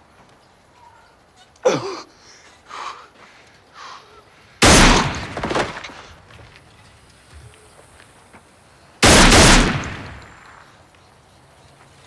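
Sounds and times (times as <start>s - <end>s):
crunching impact: 4.6s - 8.1s, 9.0s - 10.6s.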